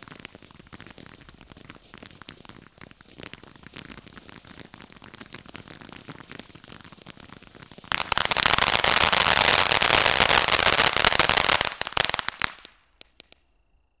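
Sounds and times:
firework crackling hiss: 0:00.0 - 0:13.4
firework pops: 0:00.0 - 0:13.4.

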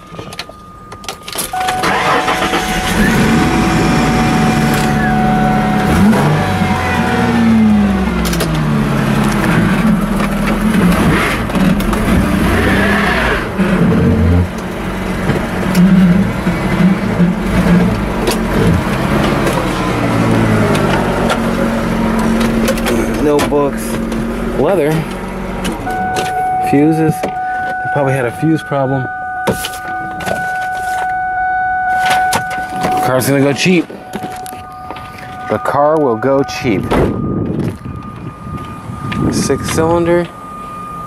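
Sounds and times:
car engines revving past: 0:01.9 - 0:23.2.

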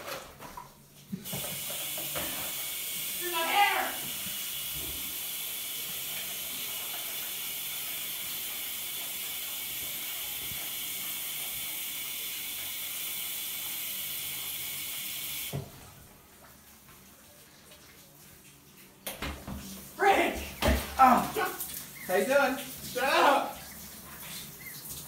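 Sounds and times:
faucet water running into sink: 0:00.0 - 0:25.0
faucet turned off knock: 0:01.2 - 0:03.0, 0:20.5 - 0:21.2.

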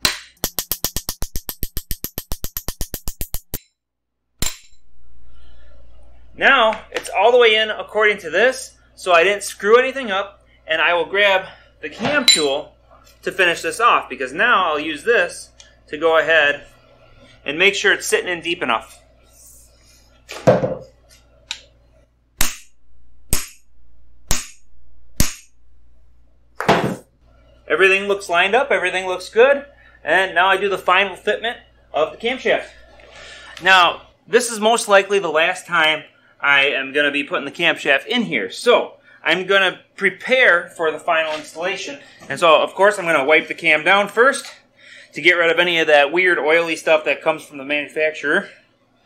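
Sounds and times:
hammer striking steel rod: 0:00.0 - 0:03.6, 0:04.4 - 0:05.0, 0:12.3 - 0:12.6, 0:22.4 - 0:25.6.

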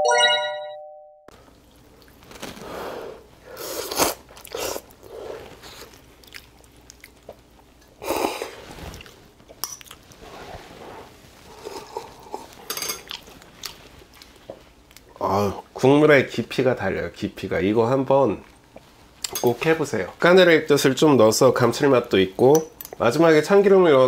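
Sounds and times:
person slurping noodles: 0:02.6 - 0:05.9.

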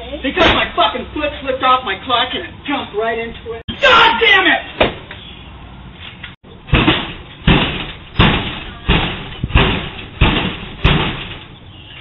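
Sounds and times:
garage door being struck: 0:06.7 - 0:11.6.

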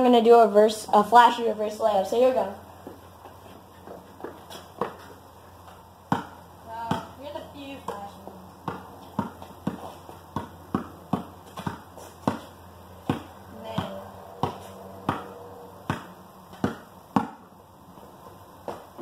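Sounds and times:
basketball bouncing on concrete: 0:02.8 - 0:17.5, 0:18.6 - 0:19.0.

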